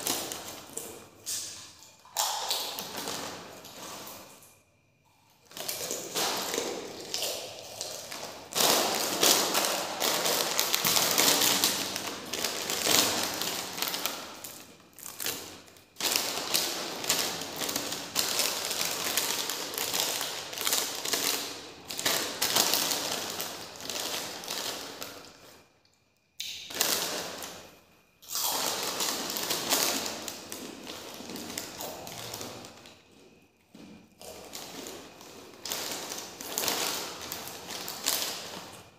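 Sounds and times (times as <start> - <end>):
crunching snacks being chewed: 28.2 - 33.3, 34.2 - 38.9.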